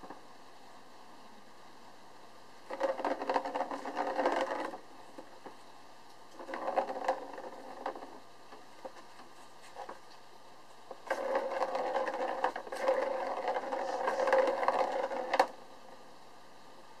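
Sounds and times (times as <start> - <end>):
plastic ball rolling rattle: 2.6 - 5.6, 6.3 - 10.0, 10.9 - 15.6
ball and paw clicks: 2.7 - 5.6, 6.3 - 10.2, 10.9 - 15.6.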